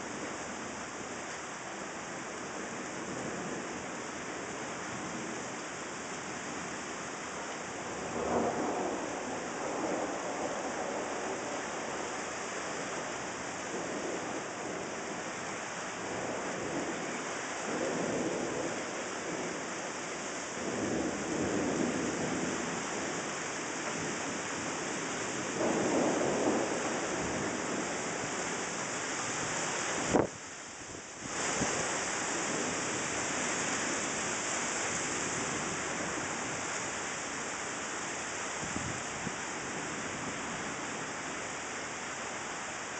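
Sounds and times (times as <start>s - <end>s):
heavy rain: 0.0s - 42.9s
thunder rumbles: 8.0s - 12.2s, 25.4s - 28.4s.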